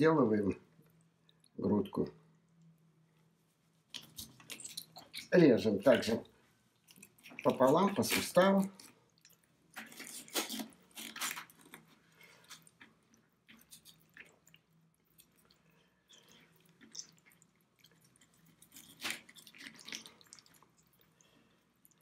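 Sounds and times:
wet squishing of meat: 0:03.8 - 0:22.0
knife crunching through chicken joint: 0:09.8 - 0:12.7, 0:18.5 - 0:20.5.

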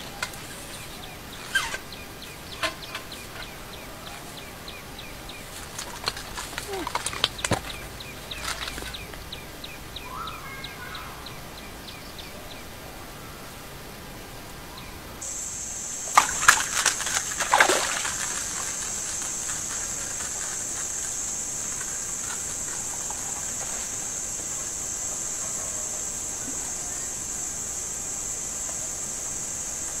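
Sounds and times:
fish splashing in pond: 0:16.0 - 0:20.4.

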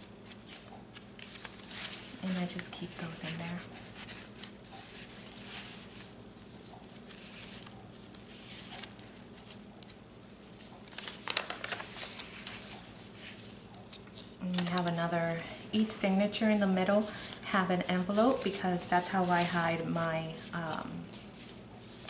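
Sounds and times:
faint steady hum: 0:00.0 - 0:22.0
paper crinkles: 0:00.1 - 0:15.0
paper rustling: 0:00.1 - 0:15.1, 0:17.2 - 0:22.0.

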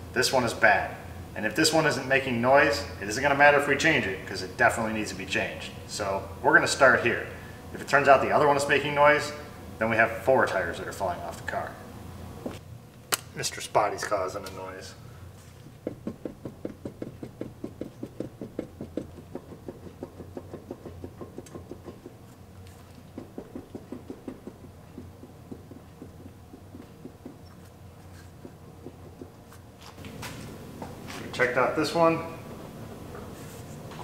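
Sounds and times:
wheel bearing grinding: 0:15.5 - 0:30.4.

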